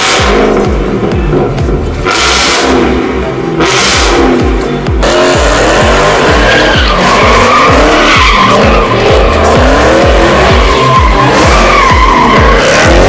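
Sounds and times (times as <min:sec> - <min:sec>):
car engine revving high: 0:00.0 - 0:13.0
music with heavy bass beat: 0:00.0 - 0:13.0
tyres squealing: 0:05.6 - 0:13.0.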